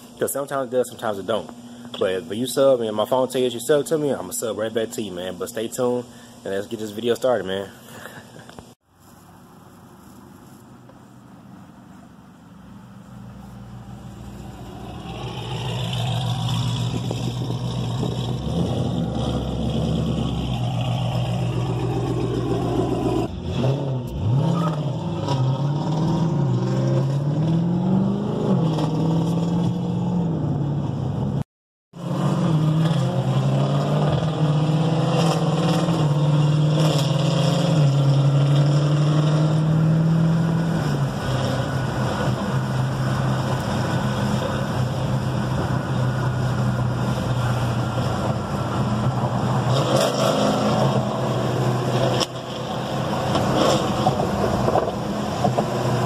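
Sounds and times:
car engine changing gears: 12.6 - 31.4, 32.0 - 56.0.

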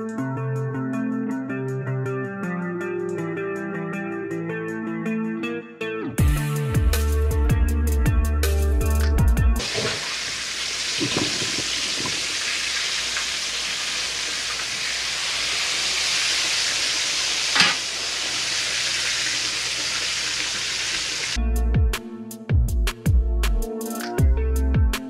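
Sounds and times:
chicken frying in oil: 9.6 - 21.4
soft knocks: 11.0 - 12.3.

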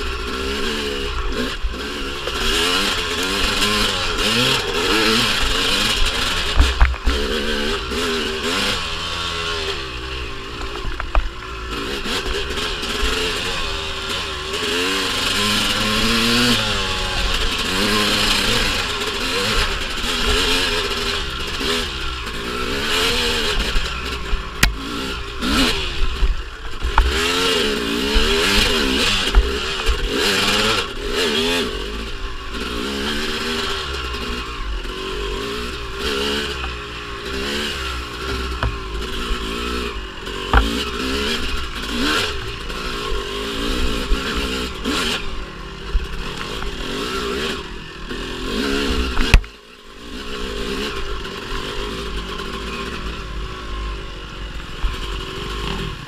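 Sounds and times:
two-stroke dirt bike engine revving: 0.0 - 56.0
sharp knocks and clatter: 3.3 - 7.4, 40.4 - 41.2.

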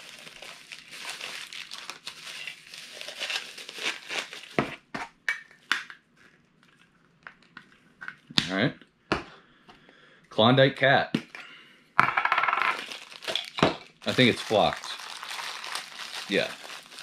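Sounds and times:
plastic bag crinkling: 0.0 - 4.6, 12.7 - 17.0.

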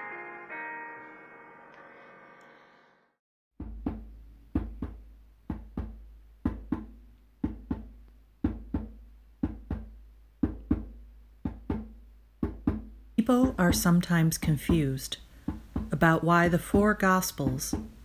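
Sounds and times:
piano chord: 0.0 - 2.0
low drum heartbeat rhythm: 3.6 - 18.0.

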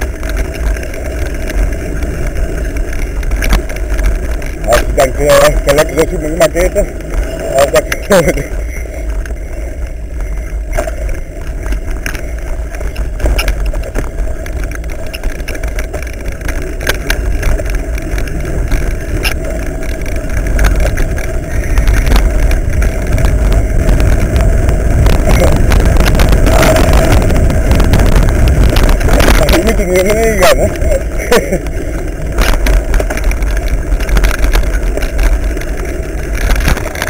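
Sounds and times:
bike clicks and rattles: 0.0 - 37.0
bike rolling on dirt trail: 0.0 - 37.0.

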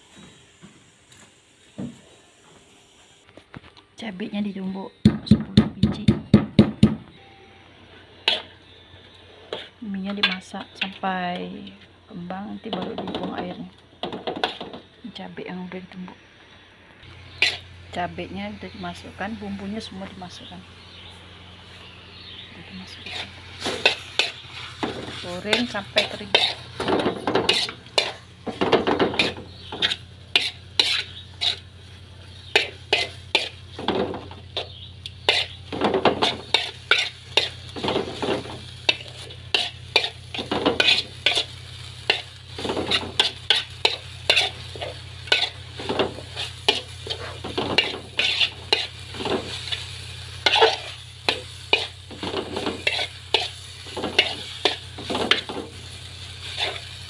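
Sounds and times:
noodles sizzling: 0.0 - 3.6, 7.7 - 57.0
spatula scraping metal wok: 8.1 - 11.0, 17.2 - 18.2, 22.7 - 57.0.

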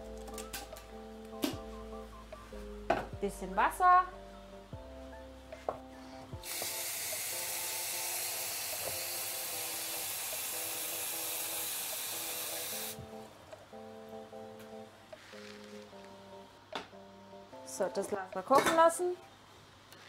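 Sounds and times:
background music: 0.0 - 19.6
tap water running into a pot: 6.4 - 13.0.

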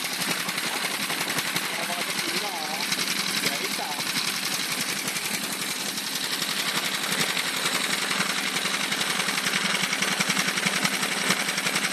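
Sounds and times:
boat engine pulsing exhaust: 0.0 - 11.9.

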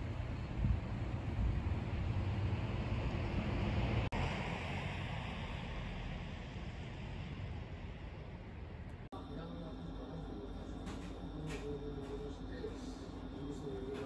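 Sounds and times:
wind buffeting microphone: 0.0 - 8.8.

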